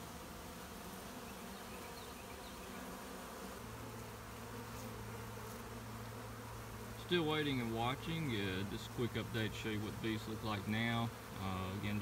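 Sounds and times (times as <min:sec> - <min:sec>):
honeybees buzzing: 0:00.0 - 0:12.0.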